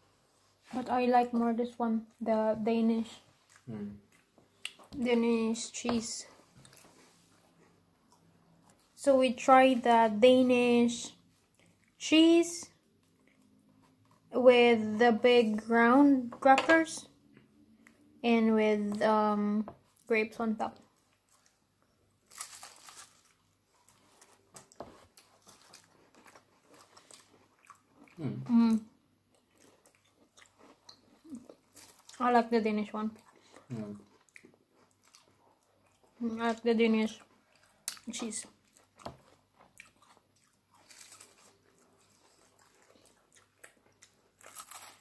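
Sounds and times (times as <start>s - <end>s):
faint chewing crunches: 3.0s - 5.1s, 6.3s - 9.0s, 20.7s - 45.0s
cracker crunching when bitten: 43.4s - 45.0s.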